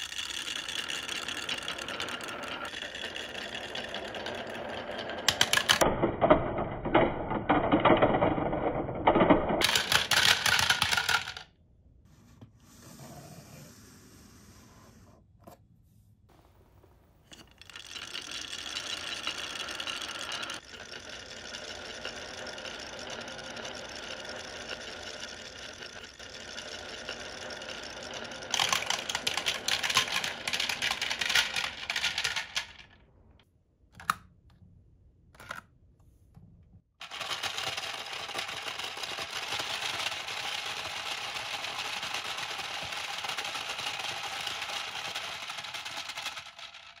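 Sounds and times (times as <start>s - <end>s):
small toy motors running: 0.0s - 4.6s, 17.6s - 32.4s, 37.0s - 47.0s
marbles clattering: 0.0s - 11.4s, 17.3s - 33.0s, 37.0s - 47.0s
marbles rolling down wooden slope: 0.0s - 11.4s, 17.3s - 33.0s, 37.0s - 47.0s.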